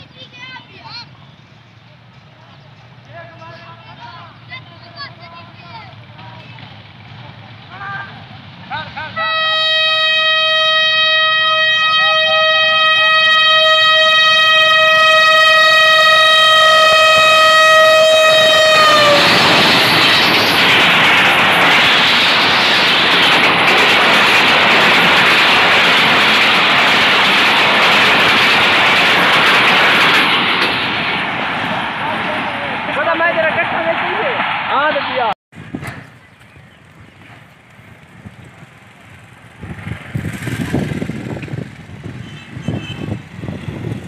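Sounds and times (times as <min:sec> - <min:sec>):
train rushing past: 0:00.0 - 0:44.0
locomotive horn blast: 0:09.1 - 0:19.6, 0:42.1 - 0:43.9.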